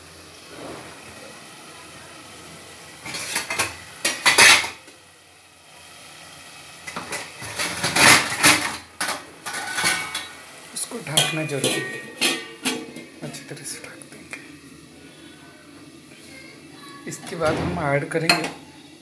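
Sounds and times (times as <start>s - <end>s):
metal spoon clattering on pots: 3.0s - 4.8s, 6.9s - 10.4s, 11.1s - 13.4s, 18.2s - 18.6s.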